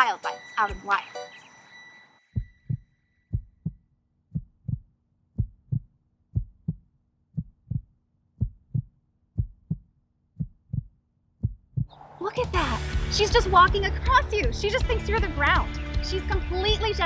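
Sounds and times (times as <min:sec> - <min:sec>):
heartbeat thumps: 0:02.4 - 0:12.0.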